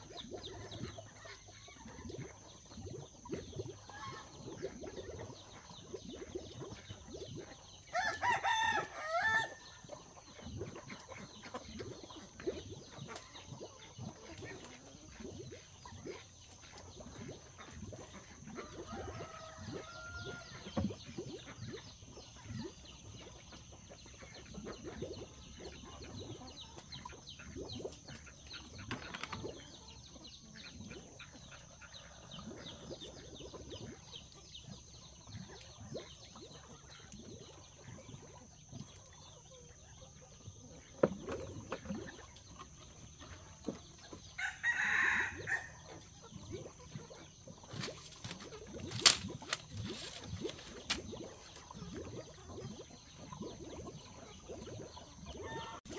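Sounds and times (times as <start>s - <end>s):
rooster crowing: 7.9s - 9.6s.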